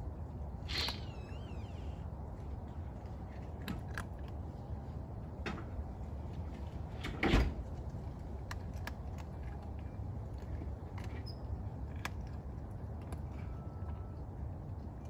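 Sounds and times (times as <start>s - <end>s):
cat eating crunches: 0.6s - 1.2s, 2.4s - 5.4s, 7.6s - 15.0s.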